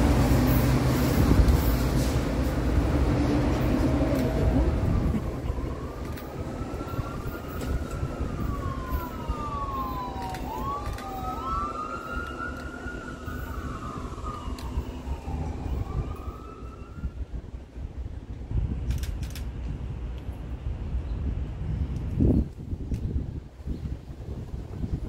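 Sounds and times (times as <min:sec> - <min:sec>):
distant siren wailing: 0:03.8 - 0:17.4.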